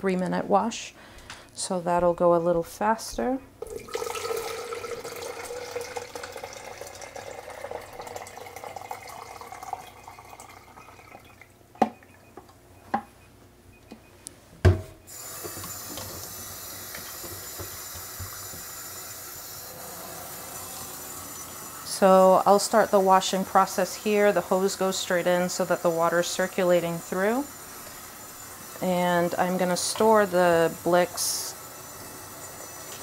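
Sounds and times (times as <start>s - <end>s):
tap water running through hose: 3.6s - 11.5s, 15.1s - 33.0s
liquid pouring into jug: 3.6s - 11.6s, 19.4s - 28.8s.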